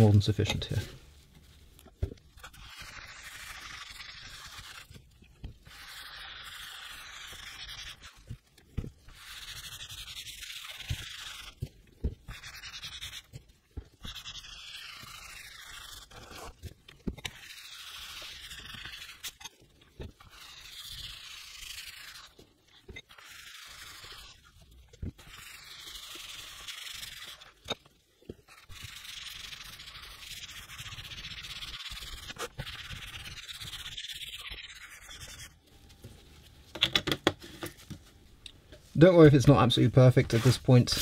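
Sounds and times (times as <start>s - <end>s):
pad rubbing oil into leather: 2.4s - 19.3s.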